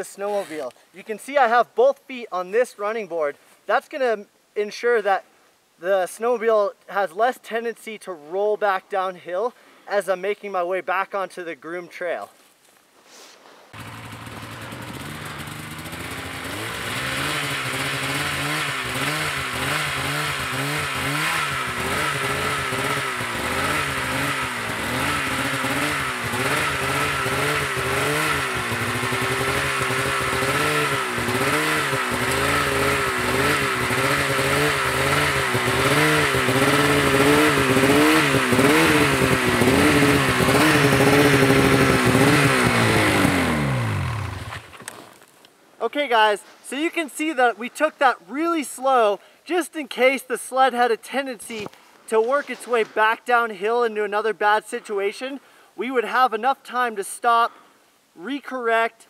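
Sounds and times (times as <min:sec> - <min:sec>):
snowmobile engine revving: 0:13.8 - 0:44.7.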